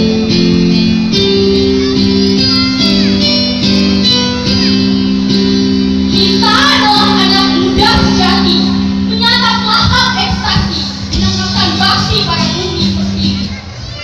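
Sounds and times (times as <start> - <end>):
amplified music with held chords: 0.0 - 13.7
girl singing into microphone: 6.1 - 13.6.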